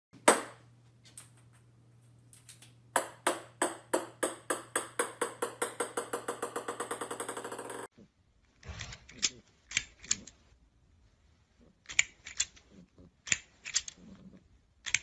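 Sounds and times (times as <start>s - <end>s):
ball bouncing on wooden floor: 0.2s - 1.6s, 3.0s - 7.9s.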